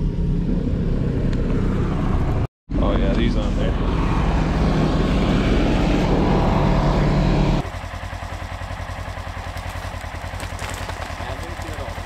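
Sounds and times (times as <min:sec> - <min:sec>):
snowmobile engine running: 0:05.5 - 0:12.0
engine idling: 0:07.0 - 0:12.0.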